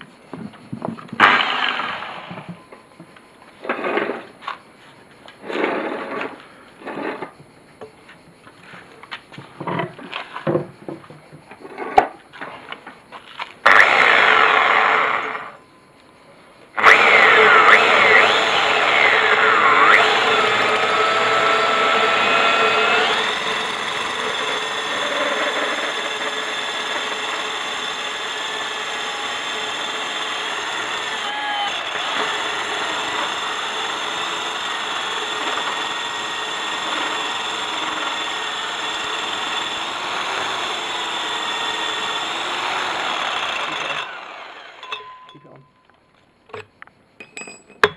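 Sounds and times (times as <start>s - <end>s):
core drill grinding into stone: 1.2s - 2.5s, 13.7s - 15.6s, 16.8s - 45.0s.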